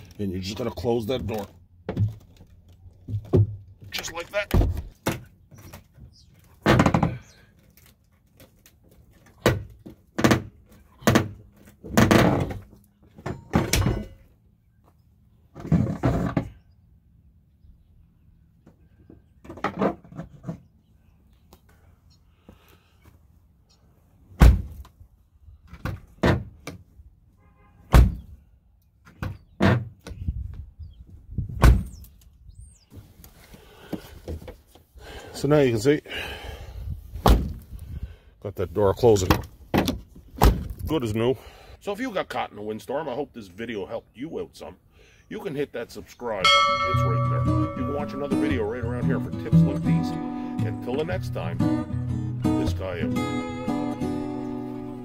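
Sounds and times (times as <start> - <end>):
truck door thudding shut: 24.4 - 24.8, 27.9 - 28.3, 31.6 - 31.9, 37.2 - 37.6.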